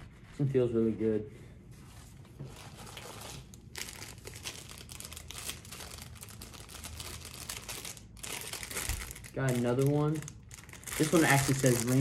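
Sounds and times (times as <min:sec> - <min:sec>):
plastic packaging crinkling: 0:02.5 - 0:12.0.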